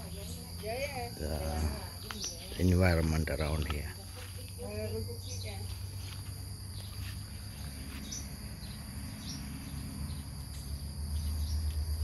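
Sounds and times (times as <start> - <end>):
insects droning: 0.0 - 12.0
bird chirps: 1.4 - 2.8, 6.7 - 11.8.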